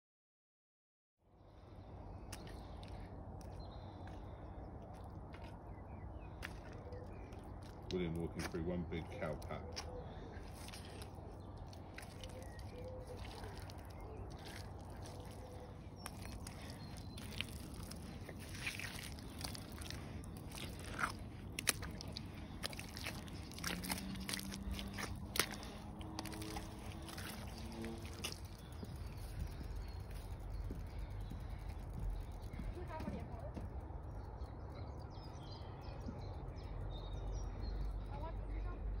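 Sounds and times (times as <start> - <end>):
boots squelching through mud: 6.3 - 33.2.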